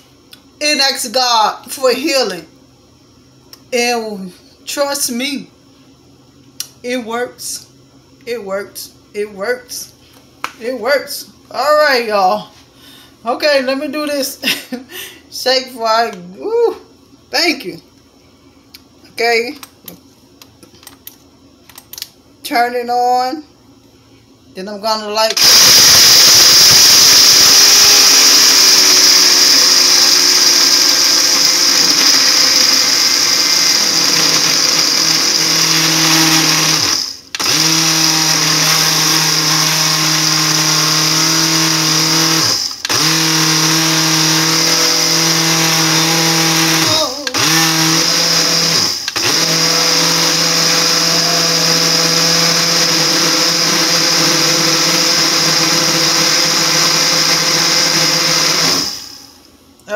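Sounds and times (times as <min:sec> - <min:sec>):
blender motor running: 0:25.4 - 0:59.4.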